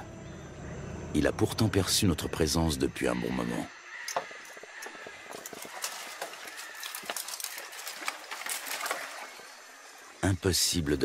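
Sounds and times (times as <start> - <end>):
dry branches cracking and rustling: 4.1 - 10.2.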